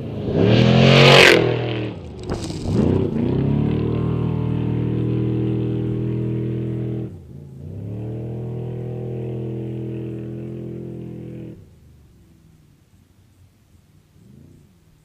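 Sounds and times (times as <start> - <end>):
race vehicle engine revving high: 0.0 - 11.7.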